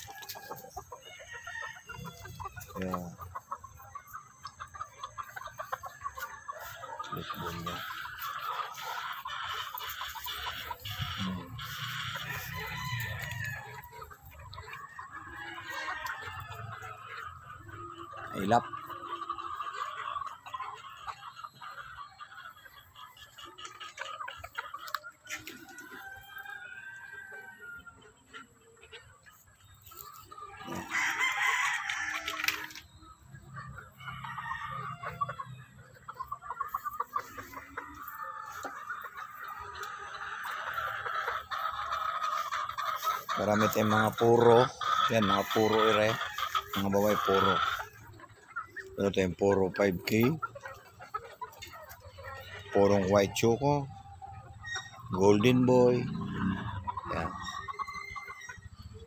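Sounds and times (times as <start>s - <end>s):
chickens clucking and calling: 0.0s - 59.0s
rooster crowing: 12.2s - 13.6s, 30.7s - 32.4s.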